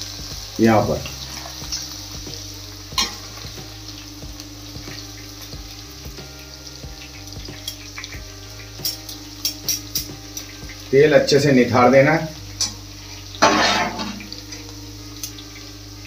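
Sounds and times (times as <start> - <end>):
food sizzling in hot oil: 0.0 - 16.0.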